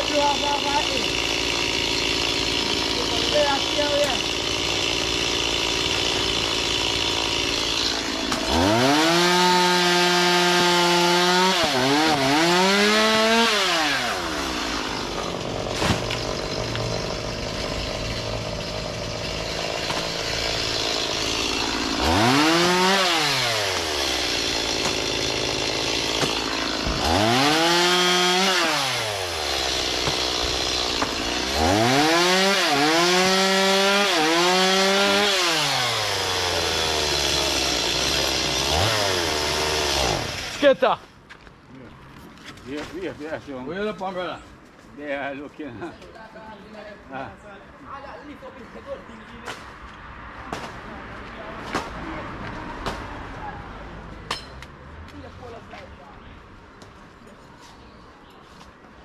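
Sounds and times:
chainsaw cutting wood: 0:00.0 - 0:40.8.

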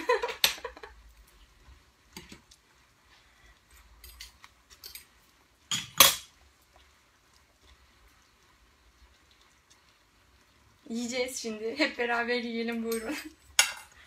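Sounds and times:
metal spoon clinking on pans: 0:04.0 - 0:05.1, 0:05.7 - 0:06.3, 0:12.7 - 0:14.0.

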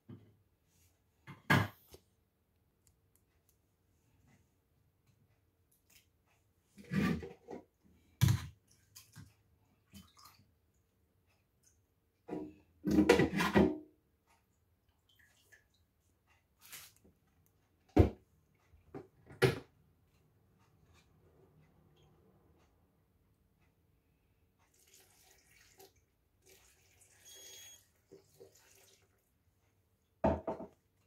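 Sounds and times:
blender jar knocking on base: 0:30.2 - 0:30.7.

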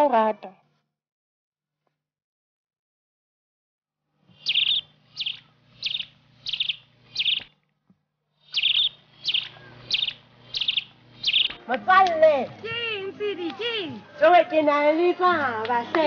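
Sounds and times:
bird chirping: 0:04.4 - 0:07.6, 0:08.4 - 0:11.7.

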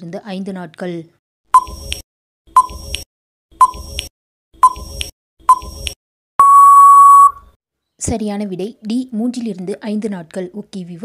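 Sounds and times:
countdown timer beeps: 0:01.6 - 0:03.0, 0:03.6 - 0:07.4.

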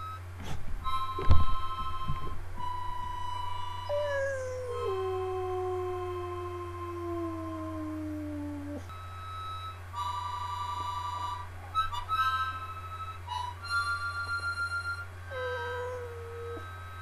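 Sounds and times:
harmonica chords: 0:00.0 - 0:05.3, 0:08.9 - 0:17.0
dog howling: 0:03.8 - 0:08.9, 0:15.3 - 0:16.8.

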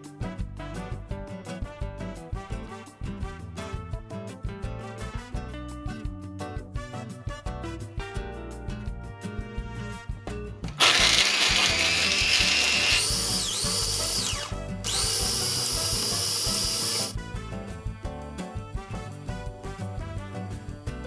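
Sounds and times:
background music: 0:00.0 - 0:21.0
electric chopper crushing ice: 0:10.7 - 0:17.2.

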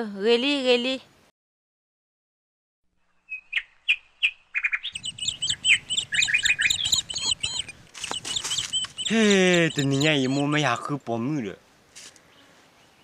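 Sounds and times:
birds chirping: 0:03.0 - 0:11.1.

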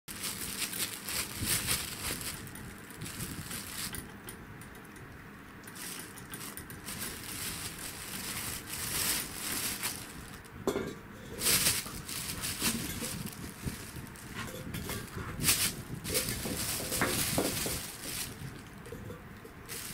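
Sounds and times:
plastic bag crinkling: 0:00.1 - 0:04.1, 0:05.6 - 0:19.9.

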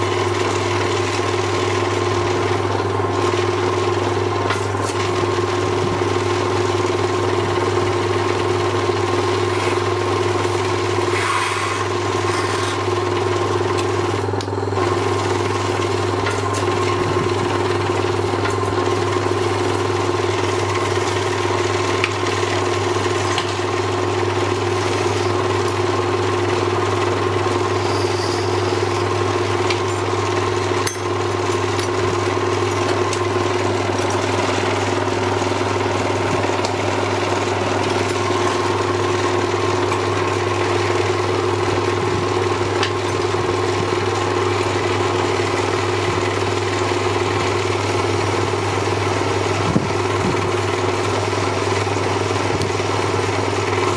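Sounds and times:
electric lathe motor hum: 0:00.0 - 0:53.9.

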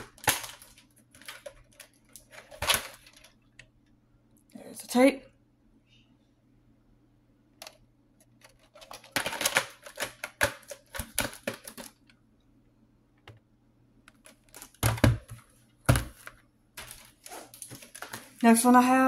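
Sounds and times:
plastic cassette clicks and clatters: 0:00.0 - 0:03.4, 0:07.6 - 0:12.2, 0:14.1 - 0:15.2
plastic tape case knock: 0:14.8 - 0:16.2.

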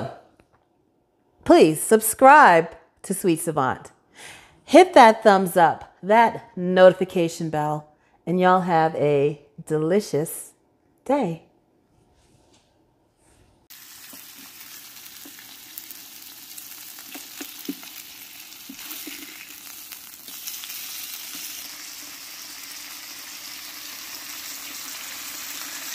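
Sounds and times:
meat sizzling on a griddle: 0:13.7 - 0:25.9.

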